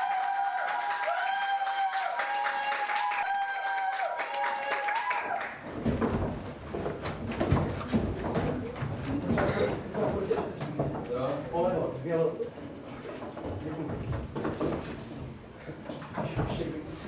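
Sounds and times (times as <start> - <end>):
thuds and shuffling on wooden stage: 5.6 - 11.4, 12.8 - 17.0.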